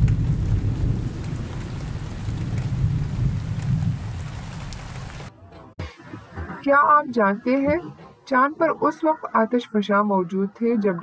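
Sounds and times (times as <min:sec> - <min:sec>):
deep thunder rumble: 0:00.0 - 0:05.3
steady rain hiss: 0:00.0 - 0:05.3.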